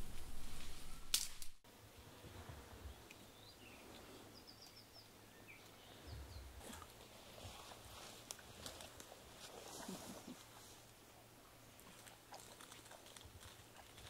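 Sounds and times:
rustling in undergrowth: 5.6 - 11.1.

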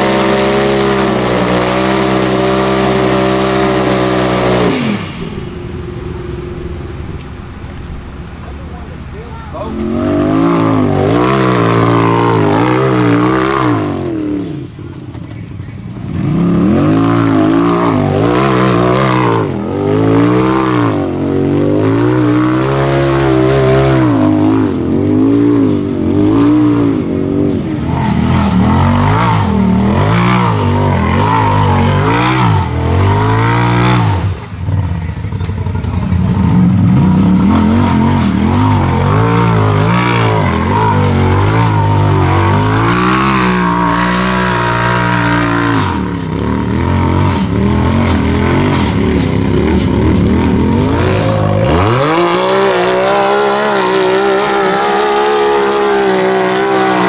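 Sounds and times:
off-road vehicle engine revving: 0.0 - 57.0.

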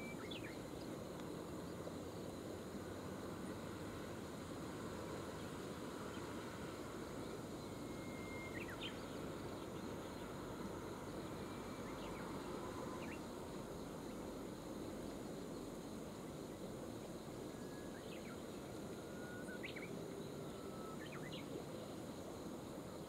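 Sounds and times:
faint bird chirps: 0.0 - 0.9, 5.4 - 10.5, 11.2 - 13.4, 17.5 - 22.0
outdoor background rush: 0.0 - 23.0.

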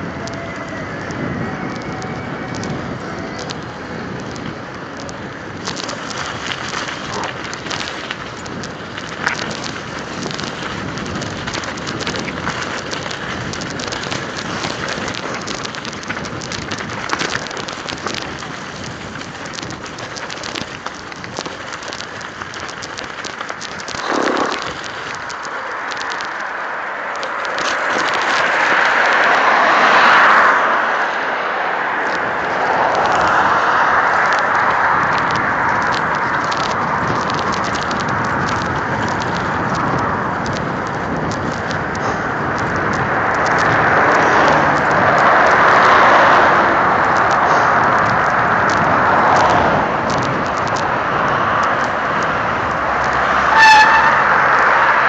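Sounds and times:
bike rattling and clicking: 0.0 - 30.8, 31.8 - 55.0
wind buffeting microphone: 0.0 - 30.9, 31.5 - 55.0
tyres rolling over gravel: 0.0 - 55.0
car passing: 23.7 - 55.0.

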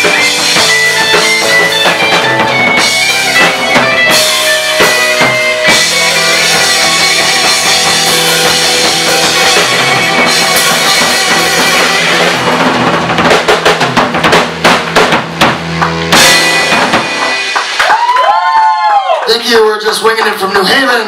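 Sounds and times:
drum fills: 0.0 - 21.0
live rock band playing: 0.0 - 21.0
cymbal crashes: 16.1 - 17.8.

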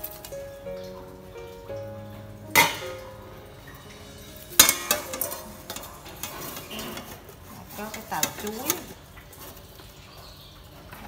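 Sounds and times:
metal pot lid clanging: 2.5 - 3.1, 3.8 - 8.9.

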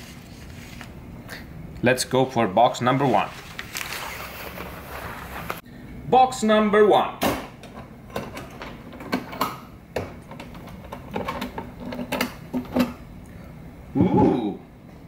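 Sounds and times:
metal clasps clicking and knocking: 7.6 - 13.0.

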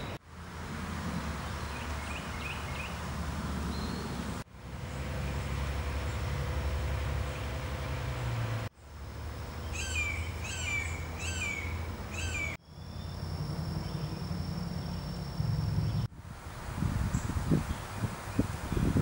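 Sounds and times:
steady low rumble: 0.0 - 19.0
bird calling downward notes: 9.6 - 16.1.

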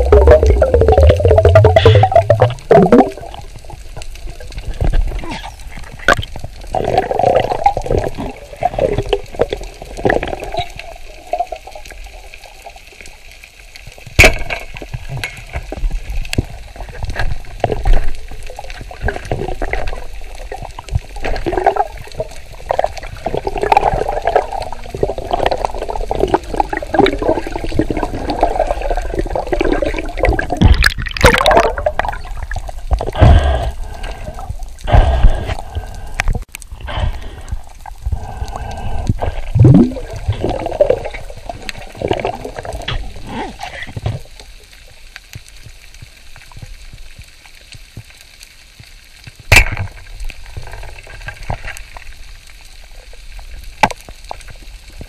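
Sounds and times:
underwater clicks and knocks: 0.0 - 10.9, 14.0 - 28.8, 29.4 - 35.6, 38.9 - 44.5, 48.8 - 52.1, 53.8 - 55.0
underwater moving water: 0.0 - 55.0
water splashing and sloshing: 0.0 - 55.0.

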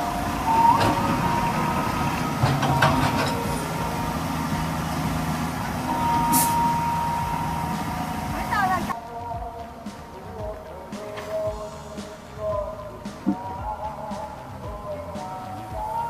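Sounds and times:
metallic clanks: 0.0 - 8.9
thin high whine: 0.0 - 8.9
excavator engine and hydraulics: 0.0 - 9.0.

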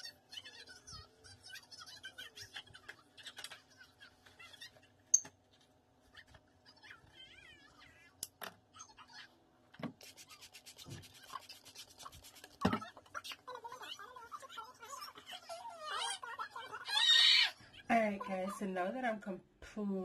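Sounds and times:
brush scratching through hair: 10.0 - 12.6.

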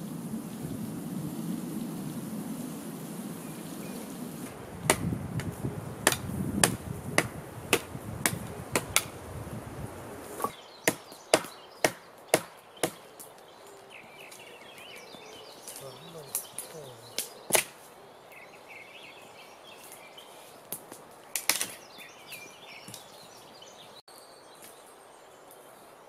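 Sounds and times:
blade chopping wooden pole: 4.8 - 9.1, 10.4 - 13.0, 17.5 - 17.8.

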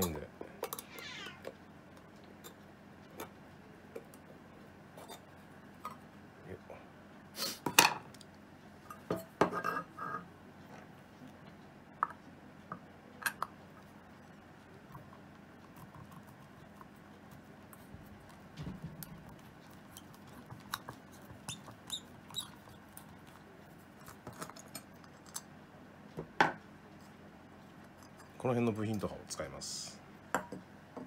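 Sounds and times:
small metal clicks and scrapes: 19.0 - 25.5.

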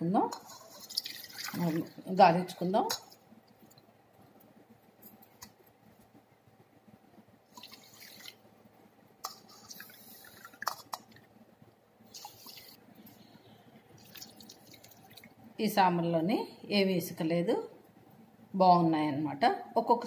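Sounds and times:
water trickling and dripping: 0.6 - 2.0, 14.0 - 15.4.

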